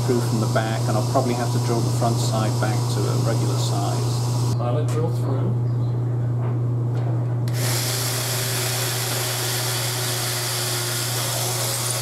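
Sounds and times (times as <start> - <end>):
steady low hum: 0.0 - 12.0
power drill boring into wood: 7.5 - 12.0.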